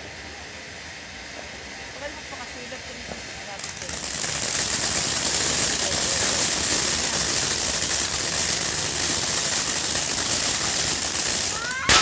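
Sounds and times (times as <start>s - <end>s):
firework fountain hissing: 0.0s - 12.0s
sputtering crackles: 3.4s - 12.0s.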